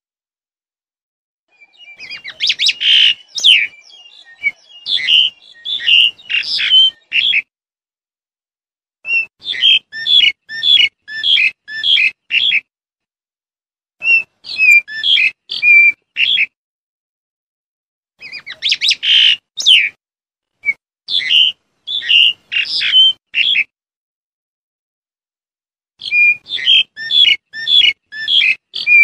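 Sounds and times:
starling calling: 1.5 - 7.5, 9.1 - 12.7, 14.0 - 16.5, 18.2 - 20.0, 20.6 - 23.7, 26.0 - 29.0.

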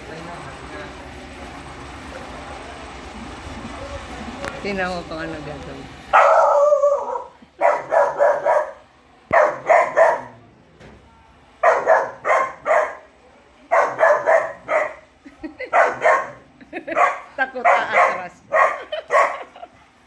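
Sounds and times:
puppy barking: 6.1 - 10.4, 11.6 - 13.1, 13.7 - 15.1, 15.7 - 19.5.

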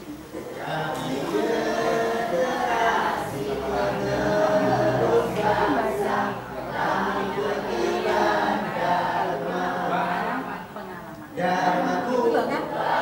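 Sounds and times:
students singing in unison: 0.0 - 13.0.

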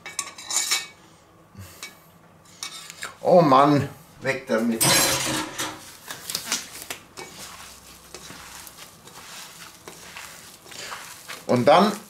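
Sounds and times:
hand squishing minced meat: 5.8 - 12.0.

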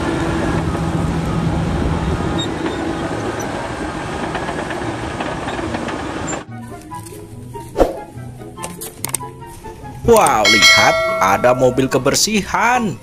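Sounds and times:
bulldozer diesel engine running: 0.0 - 6.5.

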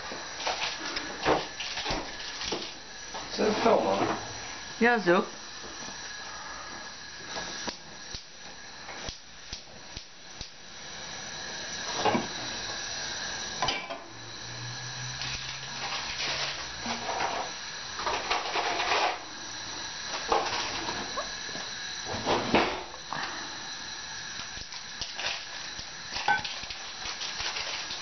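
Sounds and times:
gas flames hissing: 0.0 - 28.0
gas stove igniter clicking: 7.6 - 10.6.

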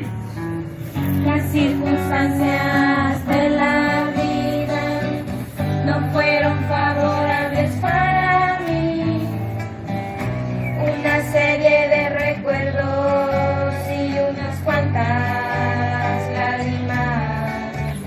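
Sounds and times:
acoustic guitar: 0.0 - 18.0
young voices singing: 1.4 - 9.5.

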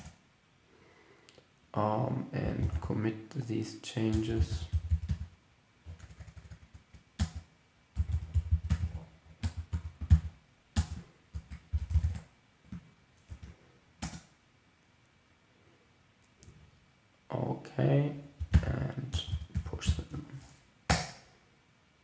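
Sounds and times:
computer keyboard typing: 2.6 - 2.8, 4.1 - 14.3, 18.4 - 20.2.

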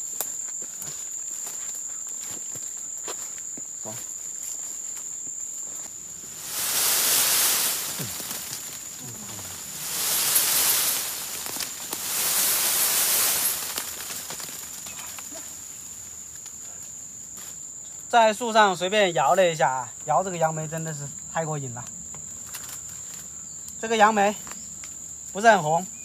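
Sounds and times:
high-pitched insect drone: 0.0 - 16.0
leaves rustling from shaken branches: 0.0 - 17.7.

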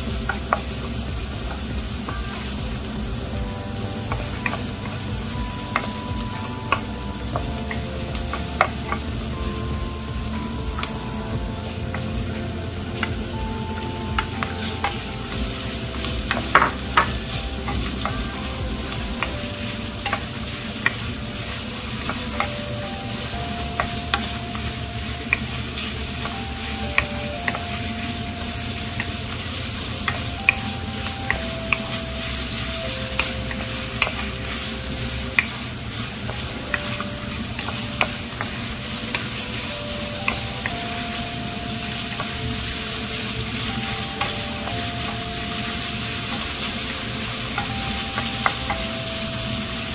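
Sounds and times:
food sizzling in a pan: 0.0 - 49.9
utensil clicking against pan: 20.0 - 22.6.

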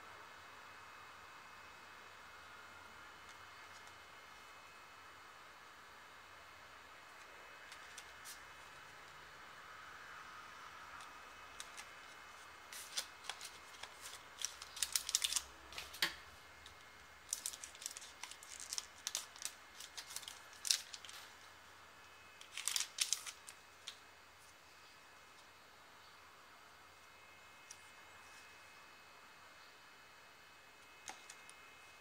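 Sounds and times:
trading cards rustling and crinkling: 7.2 - 8.6, 11.0 - 21.5, 22.4 - 24.0.

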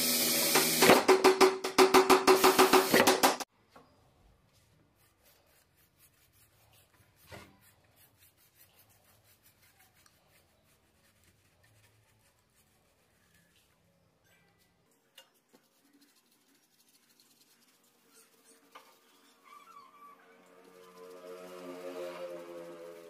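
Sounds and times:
brush strokes on wood: 4.4 - 13.9.

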